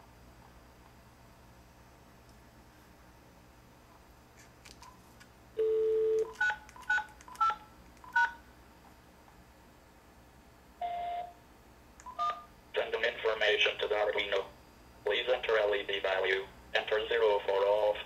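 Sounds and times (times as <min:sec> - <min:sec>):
dial tone: 0:05.6 - 0:06.6, 0:10.8 - 0:11.3
keypad tones: 0:05.6 - 0:08.4, 0:12.0 - 0:12.5.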